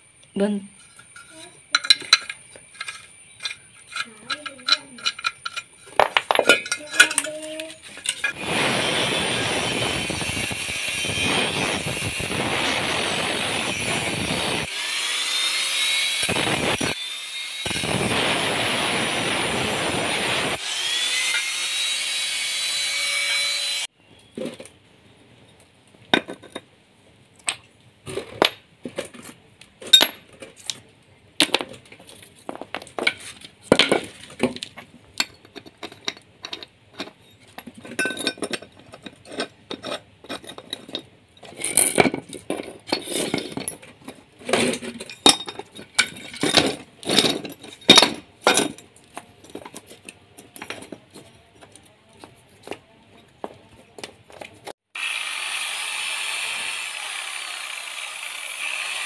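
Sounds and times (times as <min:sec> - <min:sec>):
metal pieces clinking: 0:00.7 - 0:08.4, 0:35.2 - 0:51.8
angle grinder cutting metal: 0:06.4 - 0:23.9, 0:55.0 - 0:59.0.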